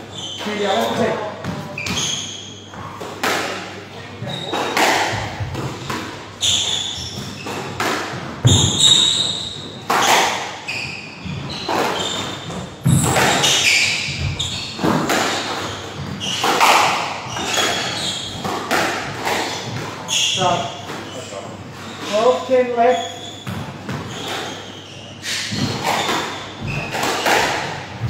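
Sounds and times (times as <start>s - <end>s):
squash ball struck by rackets: 3.0s - 3.8s, 4.5s - 9.2s, 11.7s - 20.0s, 25.5s - 28.0s.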